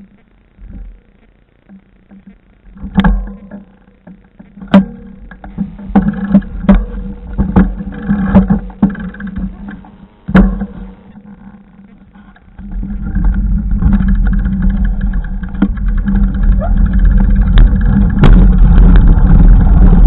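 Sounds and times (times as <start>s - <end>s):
wind: 0.0s - 20.0s
camera knocking and rattling: 1.7s - 11.7s, 12.3s - 20.0s
wheels rumbling on track: 4.7s - 20.0s.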